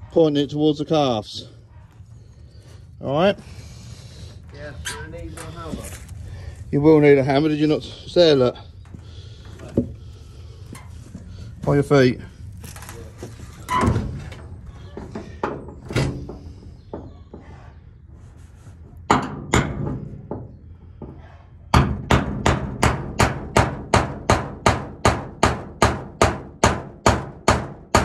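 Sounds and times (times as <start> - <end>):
hammer striking nail: 21.7 - 28.0.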